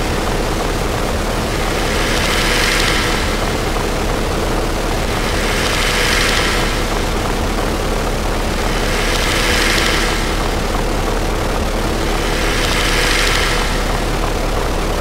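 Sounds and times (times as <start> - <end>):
hissing wash: 0.0 - 15.0.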